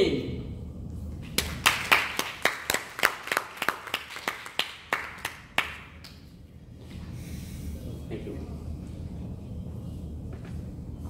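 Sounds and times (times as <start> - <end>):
audience clapping: 1.2 - 6.3.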